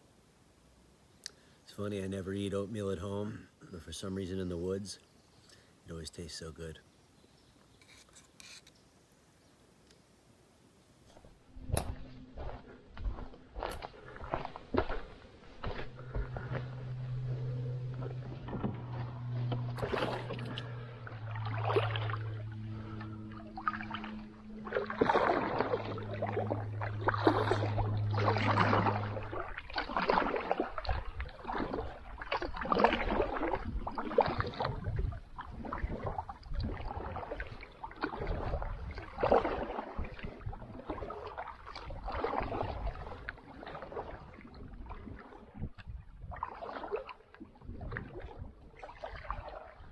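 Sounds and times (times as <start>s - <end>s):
low steady hum: 0.0s - 49.9s
canoe paddle splashing in water: 11.7s - 49.9s.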